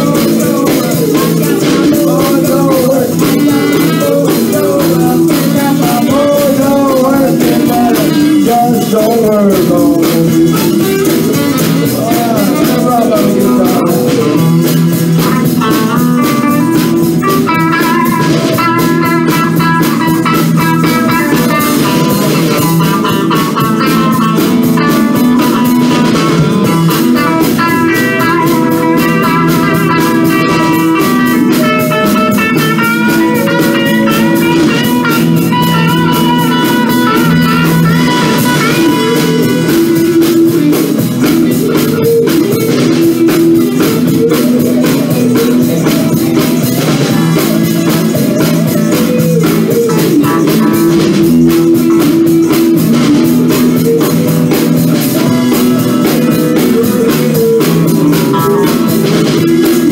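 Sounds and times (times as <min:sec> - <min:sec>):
blues band playing: 0:00.0 - 0:59.9
electric guitars: 0:00.0 - 0:59.9.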